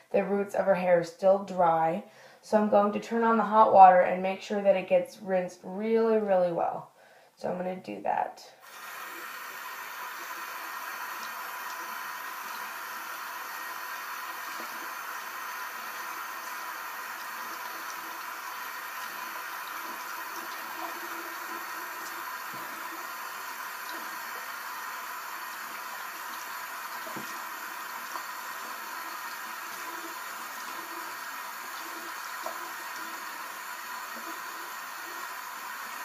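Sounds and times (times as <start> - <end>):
faucet water splashing: 8.6 - 36.0.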